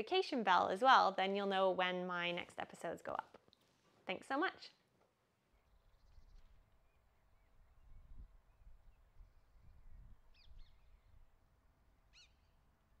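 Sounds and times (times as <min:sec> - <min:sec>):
distant birds calling: 0:10.2 - 0:11.1, 0:12.0 - 0:13.0.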